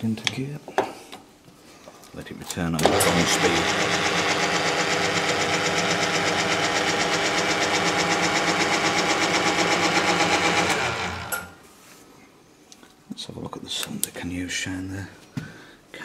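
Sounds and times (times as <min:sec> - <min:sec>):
boring bar mechanical whir: 0:02.8 - 0:11.6.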